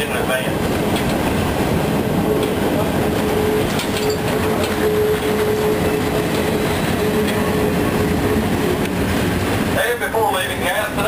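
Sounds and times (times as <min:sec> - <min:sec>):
rumble and rattle of wheels: 0:00.0 - 0:11.0.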